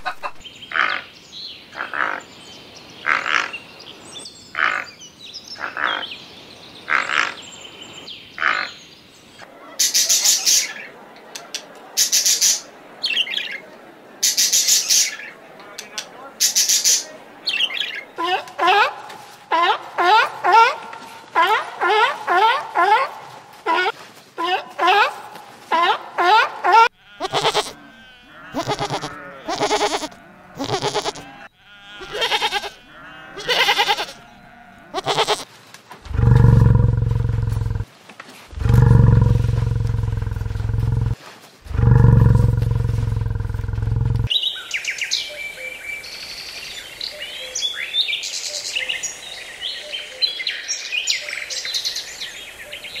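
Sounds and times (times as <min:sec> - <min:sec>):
goat bleating: 0:26.8 - 0:35.5
bison bellowing: 0:36.0 - 0:37.9, 0:38.5 - 0:44.3.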